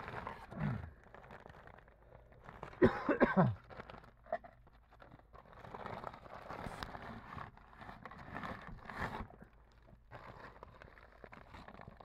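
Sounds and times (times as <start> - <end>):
plastic sheeting rustling: 0.0 - 2.8, 3.4 - 12.0
low grunt: 0.5 - 1.0.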